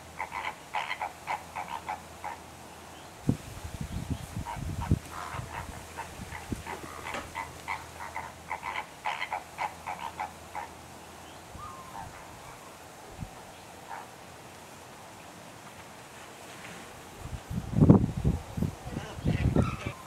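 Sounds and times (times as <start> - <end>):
flamingos honking: 0.0 - 2.5, 4.4 - 10.8, 18.9 - 20.0.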